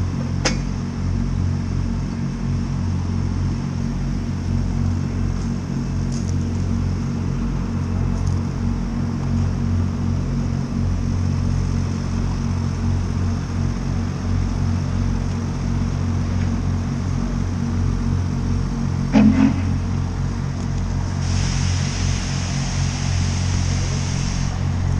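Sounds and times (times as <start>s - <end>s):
steam locomotive low rumble: 0.0s - 24.9s
loud tone: 19.1s - 19.9s
steam hissing: 21.0s - 24.9s.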